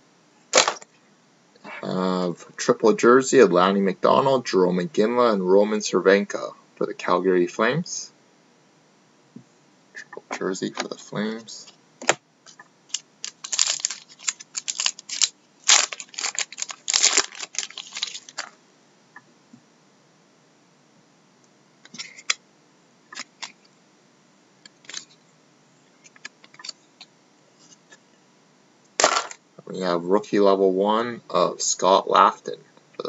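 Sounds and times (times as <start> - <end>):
card pack crinkling: 0.6 - 0.8, 12.9 - 18.6.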